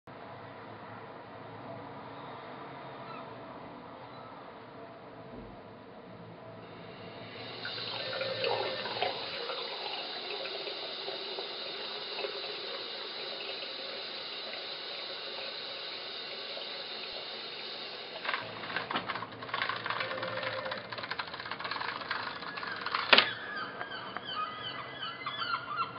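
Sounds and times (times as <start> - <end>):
tap water running into basin: 6.7 - 23.5
clicks and rattles: 18.2 - 23.4.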